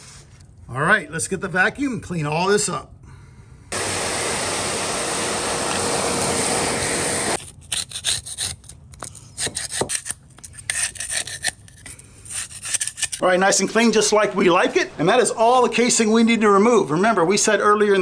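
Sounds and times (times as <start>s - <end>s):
vacuum cleaner running: 3.7s - 7.4s.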